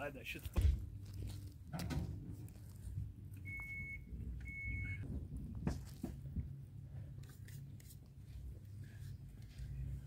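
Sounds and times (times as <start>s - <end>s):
low rumble: 0.8s - 7.1s
short electronic beeps: 3.4s - 5.0s.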